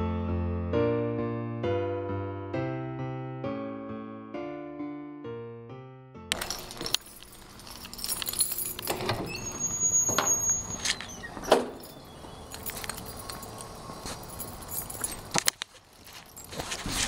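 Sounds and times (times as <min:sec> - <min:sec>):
handheld camera rustling: 0:11.8 - 0:17.0
footsteps on brick paving: 0:12.2 - 0:17.0.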